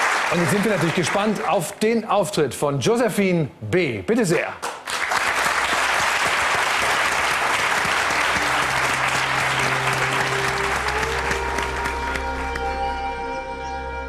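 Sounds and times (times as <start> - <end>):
audience applauding: 0.0 - 1.7, 4.6 - 13.0
slow music with held notes: 8.0 - 14.0.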